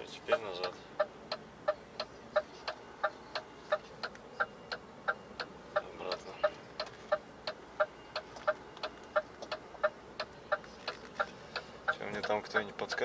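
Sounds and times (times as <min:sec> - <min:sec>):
indicator ticking: 0:11.6 - 0:13.0.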